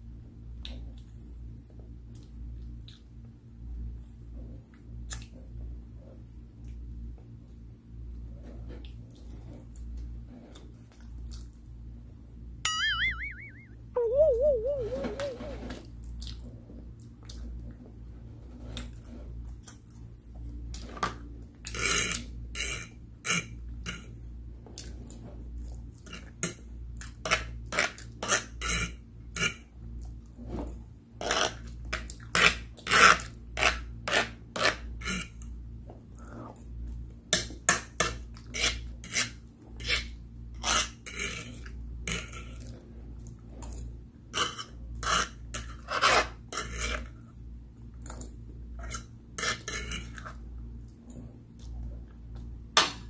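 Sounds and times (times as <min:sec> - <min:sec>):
low hum: 0:12.7 - 0:15.7.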